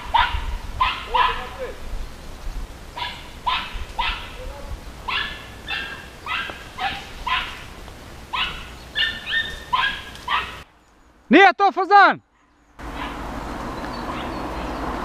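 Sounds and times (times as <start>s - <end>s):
dog yelping: 0.0s - 1.6s, 3.0s - 4.4s, 5.0s - 7.7s, 8.3s - 10.6s, 12.3s - 13.2s, 14.1s - 14.8s.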